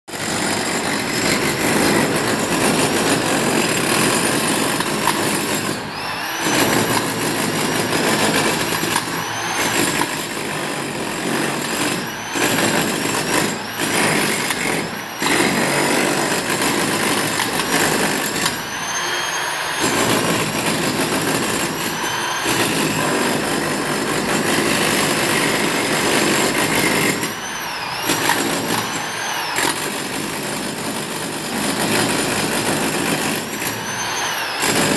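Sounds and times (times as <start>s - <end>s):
rotary hammer chiselling brick: 0.1s - 34.9s.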